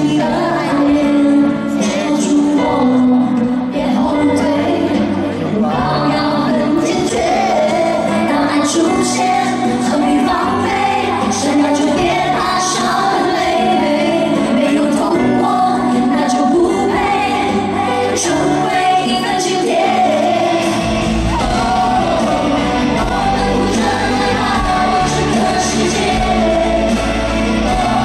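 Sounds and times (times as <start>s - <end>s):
female singer: 0.0s - 28.0s
live pop song with band: 0.0s - 28.0s
heavy bass line: 20.3s - 28.0s.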